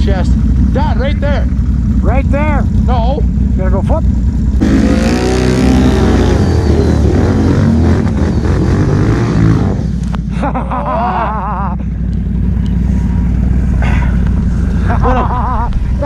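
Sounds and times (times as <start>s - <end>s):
atv engine revving: 0.0s - 16.0s
wavering warbling tone: 4.6s - 10.1s.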